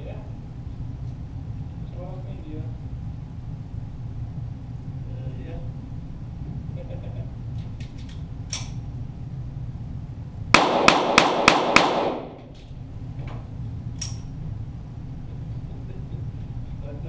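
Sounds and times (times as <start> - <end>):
pistol shots: 10.5 - 12.4.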